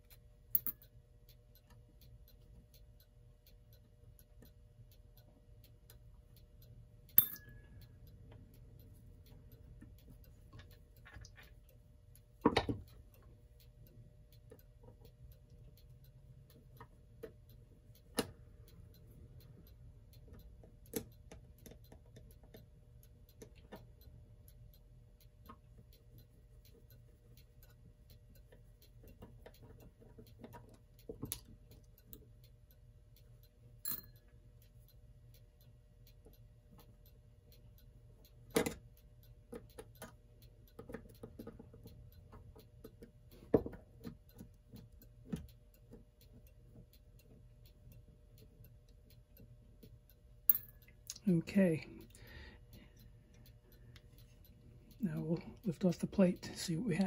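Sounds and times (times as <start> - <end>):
faint steady hum: 0.0 - 57.0
screwdriver and metal parts clicking: 0.5 - 0.9, 7.2 - 7.7.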